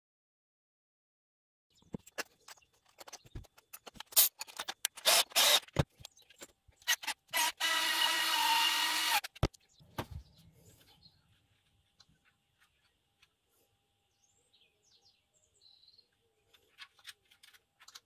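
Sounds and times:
screws and plastic parts rattling: 1.8s - 9.6s, 16.5s - 18.0s
cordless screwdriver motor: 5.0s - 5.8s, 6.8s - 9.4s.

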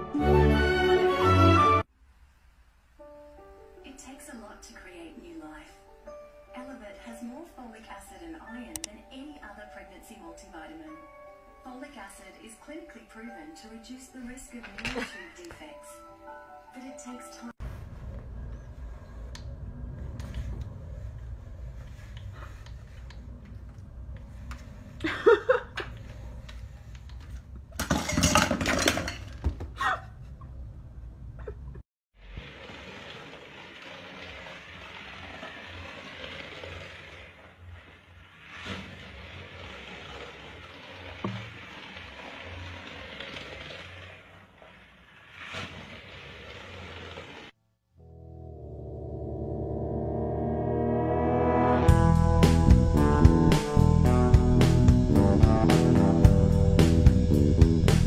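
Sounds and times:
toy car whirring and rattling: 32.4s - 47.6s
steady musical tone: 48.0s - 58.0s.

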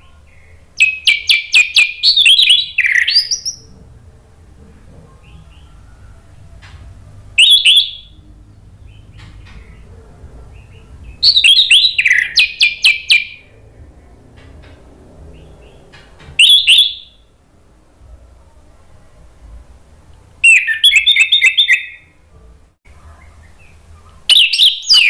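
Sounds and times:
bird song: 0.0s - 4.0s, 4.7s - 17.4s, 20.4s - 22.2s, 22.9s - 25.0s
thrush chirping: 7.3s - 14.2s, 15.2s - 17.4s.

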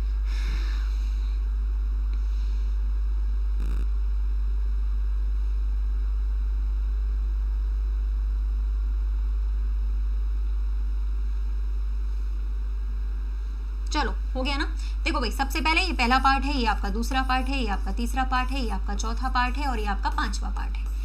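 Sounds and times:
low hum: 0.0s - 21.0s.

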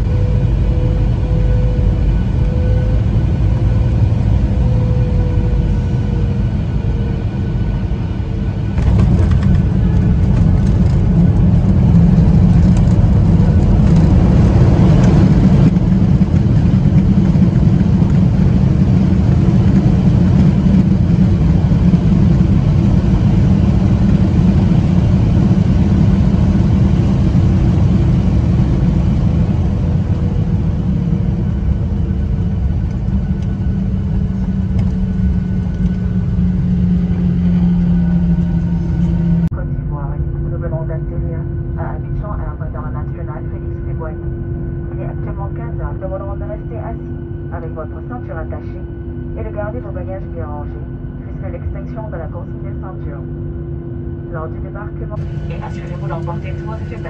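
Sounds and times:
airplane cabin rumble: 0.0s - 57.0s.

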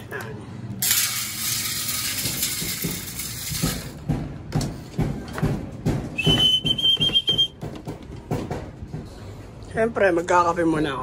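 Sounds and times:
person whistling: 6.2s - 7.6s.

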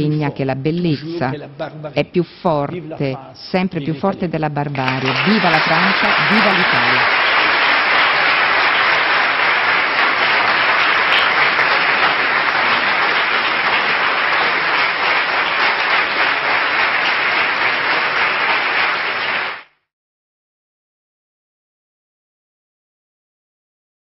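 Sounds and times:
audience applauding: 4.7s - 19.8s.

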